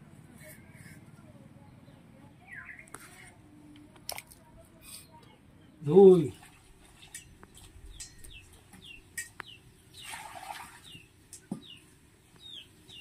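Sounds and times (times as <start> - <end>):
bird chirping: 1.6 - 3.3, 7.1 - 13.0
water splashing in steel bowl: 9.9 - 11.5.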